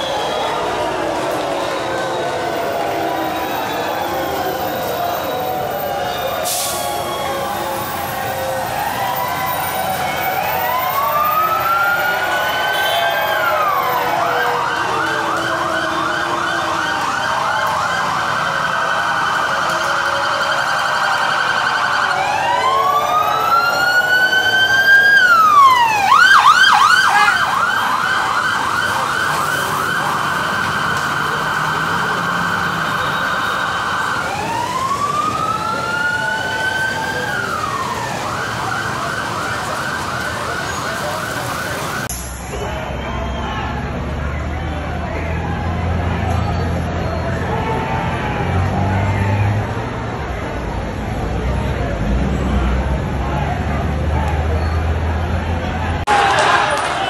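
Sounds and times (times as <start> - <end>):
police siren wailing and yelping: 0.0 - 42.1.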